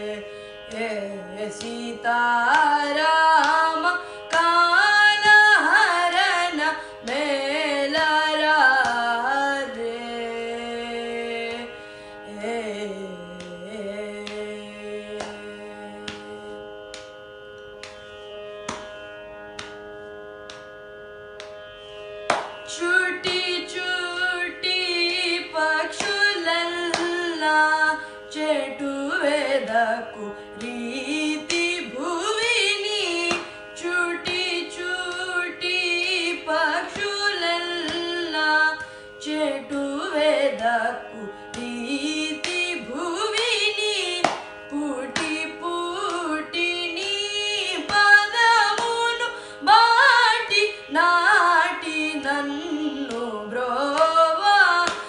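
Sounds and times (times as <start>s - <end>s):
boy singing: 0.0s - 11.7s.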